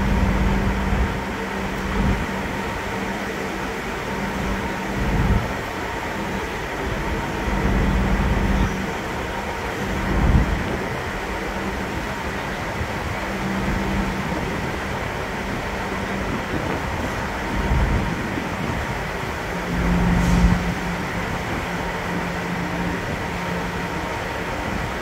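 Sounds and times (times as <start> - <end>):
ferry engines droning: 0.0 - 25.0
wind rumbling on microphone: 0.0 - 25.0.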